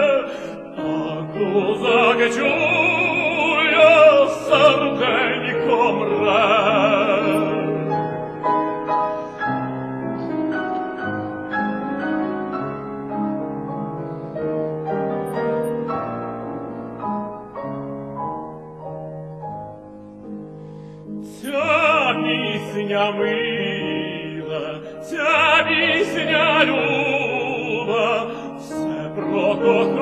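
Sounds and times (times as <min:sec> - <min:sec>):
tenor singing with vibrato: 0:00.0 - 0:08.9, 0:21.2 - 0:30.0
piano playing chords and melody: 0:00.0 - 0:30.0.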